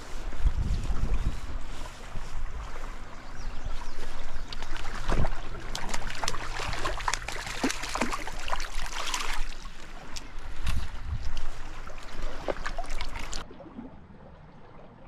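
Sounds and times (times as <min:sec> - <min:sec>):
stream trickling: 0:00.0 - 0:15.0
fish splashing at water surface: 0:04.5 - 0:10.7, 0:11.3 - 0:13.5.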